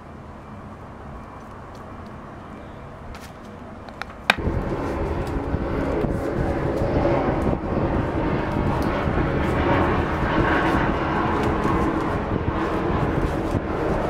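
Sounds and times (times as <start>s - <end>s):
low rumbling drone: 4.4s - 14.0s.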